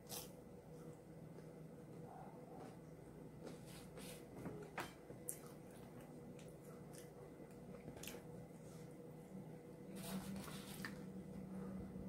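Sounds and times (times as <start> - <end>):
faint steady hum: 0.0 - 12.0
soft chewing crunches: 5.1 - 9.0.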